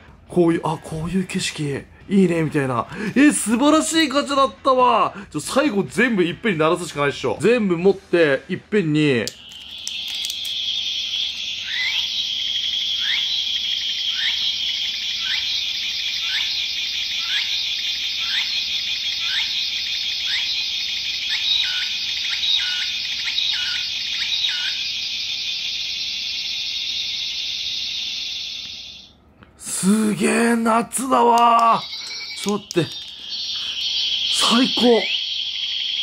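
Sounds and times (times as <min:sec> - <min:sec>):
cicada buzzing: 0:09.3 - 0:29.1, 0:31.1 - 0:36.0
falling insect call: 0:09.3 - 0:29.2, 0:31.0 - 0:36.0.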